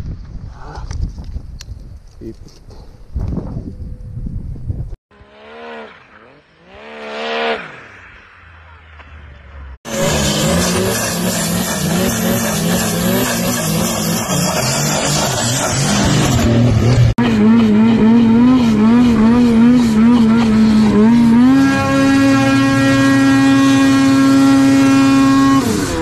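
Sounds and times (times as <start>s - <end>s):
snowmobile engine revving: 5.1s - 9.1s, 9.9s - 26.0s
snowmobile running at high revs: 5.2s - 9.1s, 9.9s - 26.0s.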